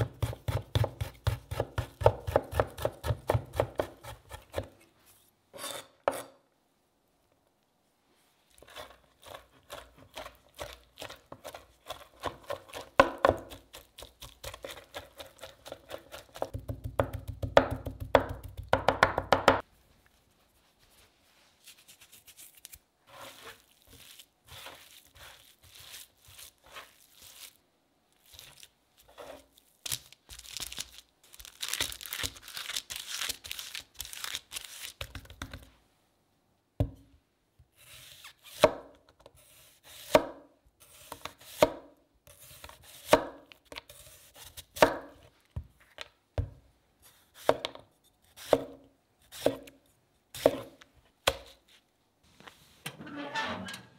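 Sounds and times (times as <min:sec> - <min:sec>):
knife chopping on cutting board: 0:00.0 - 0:04.7, 0:48.4 - 0:49.7
parchment paper crinkling: 0:29.6 - 0:35.0.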